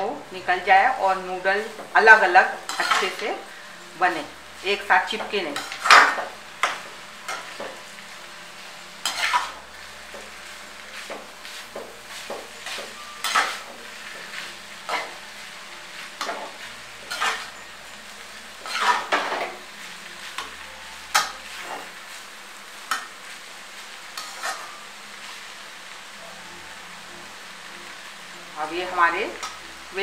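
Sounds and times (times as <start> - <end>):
faint stir-fry sizzle: 0.0 - 30.0
metal spoon scraping a wok: 2.7 - 3.4, 5.5 - 7.7, 9.0 - 9.6, 12.1 - 15.2, 16.1 - 17.6, 18.6 - 19.6, 24.2 - 24.8.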